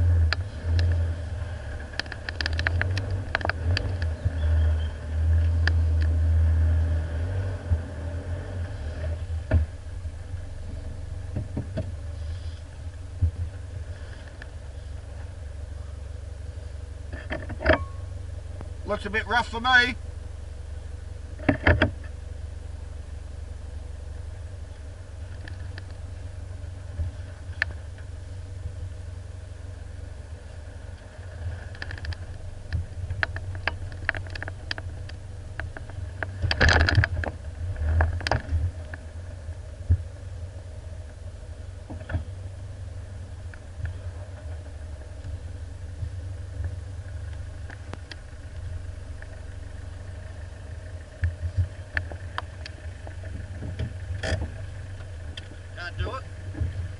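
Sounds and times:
vehicle engine running low: 0.0 - 56.9
vehicle knocks and rattles: 9.0 - 10.0, 10.6 - 12.2, 13.1 - 14.5, 17.1 - 18.8, 21.3 - 22.2, 31.0 - 40.2, 41.8 - 42.6, 45.9 - 55.7, 56.3 - 56.9.

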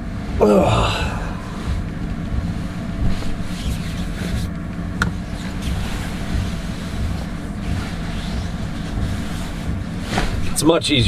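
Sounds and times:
diesel heater humming: 0.0 - 11.0
sleeping bag rustling: 5.2 - 10.6.

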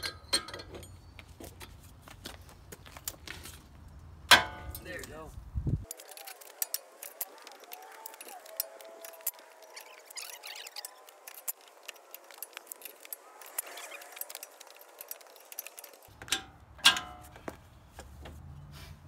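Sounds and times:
loud metallic clank: 4.3 - 4.8
wrench clicking and clinking: 5.8 - 17.2.

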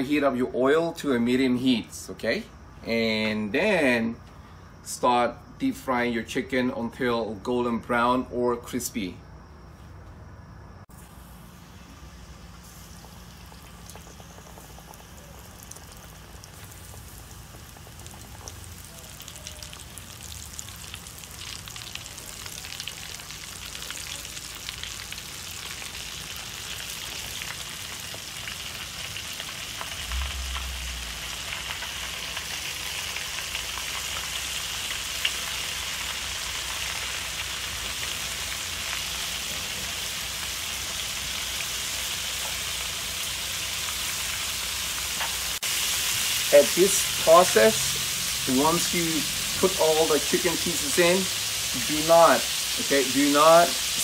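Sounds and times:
chicken deep-frying in oil: 10.9 - 54.0.

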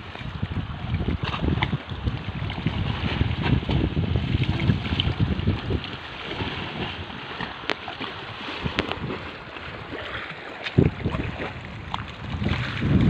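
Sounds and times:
wind bump on microphone: 0.0 - 7.5, 8.4 - 9.5, 10.6 - 13.0
lapping water: 0.0 - 13.0.

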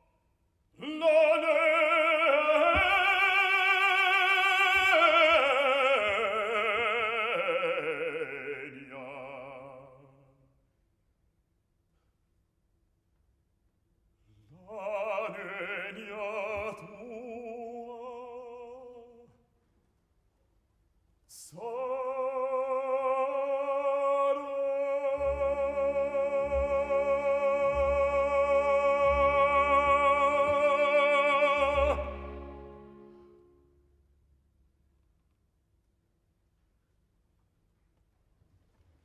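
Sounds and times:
operatic baritone singing: 0.8 - 10.4, 14.5 - 19.3, 21.3 - 33.3
low orchestral chord: 31.6 - 34.0.

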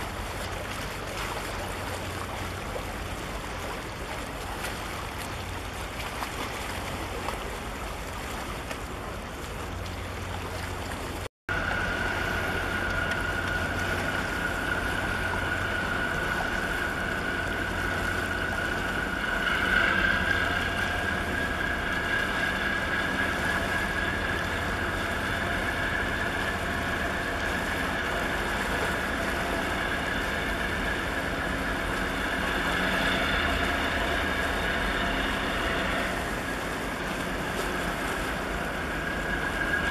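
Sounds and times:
ship engine rumble: 0.0 - 39.9
water wash: 0.0 - 39.9
high-pitched whine: 11.5 - 39.9.

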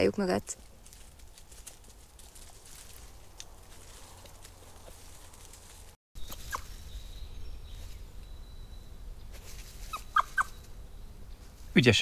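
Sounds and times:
badger cubs squeaking: 6.2 - 7.0, 7.6 - 10.9.

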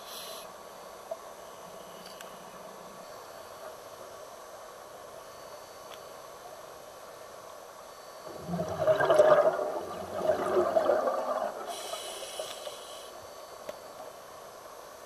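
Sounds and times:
faint high hiss: 0.0 - 15.0
underwater bubbles gurgling: 8.3 - 12.9.

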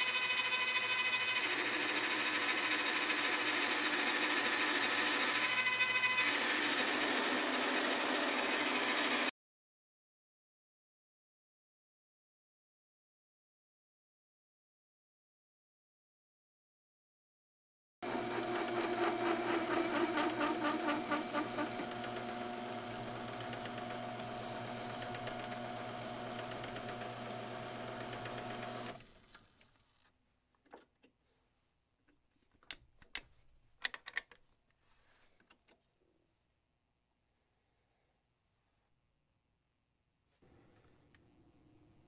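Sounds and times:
metal lathe running: 0.0 - 9.3, 18.0 - 29.0
metallic clicks and knocks: 32.1 - 34.5.

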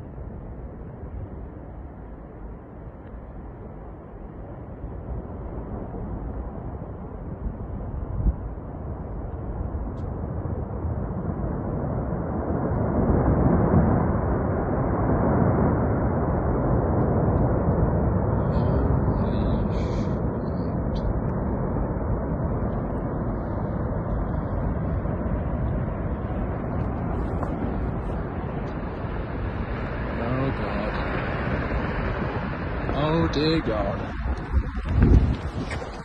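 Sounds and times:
ice avalanche rumbling: 24.3 - 36.0.

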